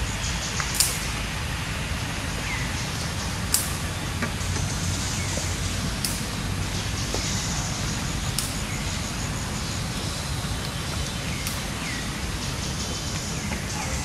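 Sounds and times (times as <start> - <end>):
low outdoor rumble: 0.0 - 14.0
sharp faint ticks: 3.1 - 7.3, 10.0 - 13.7.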